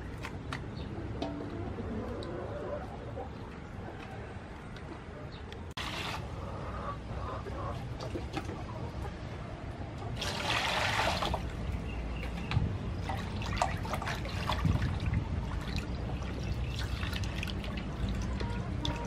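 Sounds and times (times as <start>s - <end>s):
water poured into metal basin: 10.2s - 11.5s.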